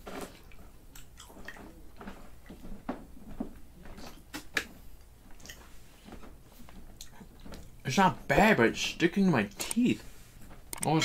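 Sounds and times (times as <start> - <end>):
chewing gummy candy: 0.9 - 1.9
mouth clicks and smacks: 4.0 - 4.8.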